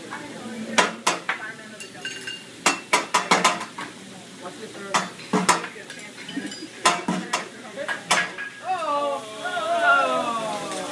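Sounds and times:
spatula and fork clanging on griddle: 0.8s - 4.0s, 4.8s - 8.6s.

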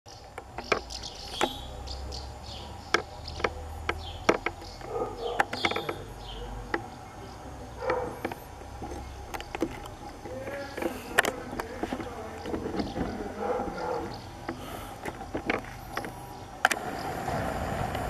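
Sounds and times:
small birds chirping: 0.1s - 17.8s
sharp clicks and knocks: 0.2s - 1.6s, 2.8s - 6.9s, 7.8s - 16.8s.

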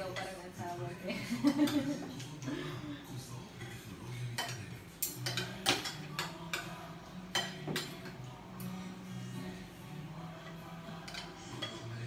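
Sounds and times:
cutlery clinking on plates: 0.0s - 0.4s, 1.4s - 2.5s, 3.6s - 8.3s, 10.5s - 12.0s.

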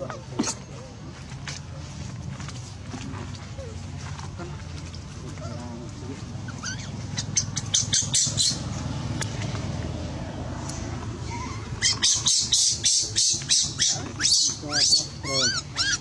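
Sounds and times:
baby monkey shrieking: 6.5s - 8.6s, 11.3s - 16.0s.

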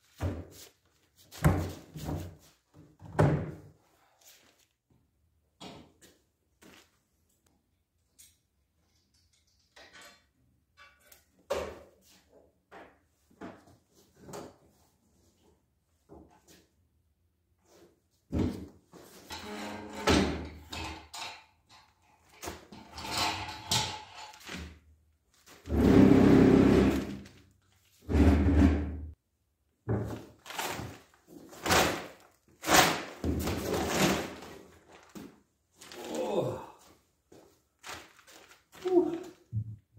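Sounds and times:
metal parts clunking: 19.3s - 24.6s.

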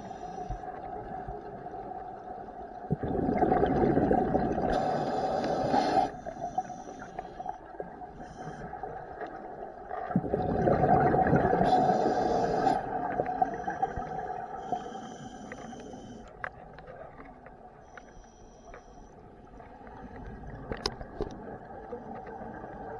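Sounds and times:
steady underwater hum: 0.0s - 22.9s
rush of exhaled bubbles: 2.8s - 6.1s, 9.9s - 14.1s
faint clicks: 15.4s - 22.8s.

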